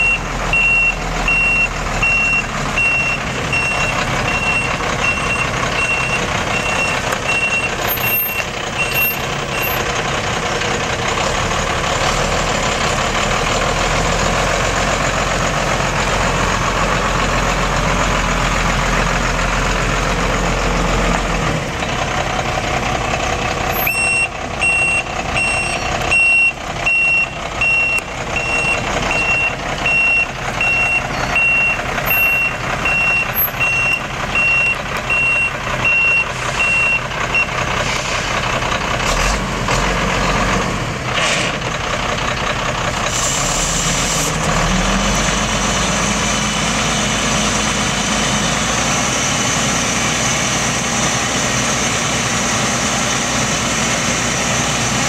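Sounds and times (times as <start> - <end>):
backup alarm beeping: 0.0 - 9.8, 23.8 - 37.5
truck engine running: 0.0 - 55.0.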